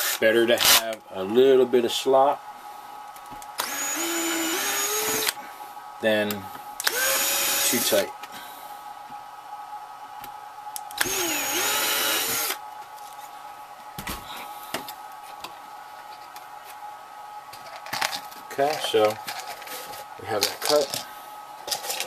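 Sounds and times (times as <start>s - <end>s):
cordless drill whining: 3.6s - 5.4s, 6.8s - 7.9s, 11.0s - 12.6s.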